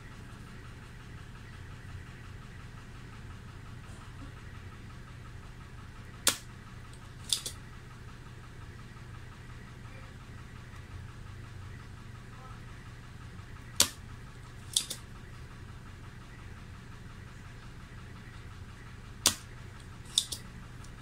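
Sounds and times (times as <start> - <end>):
steady low hum: 0.0 - 21.0
desoldering pump snapping: 6.1 - 7.6, 13.7 - 15.2, 19.2 - 21.0.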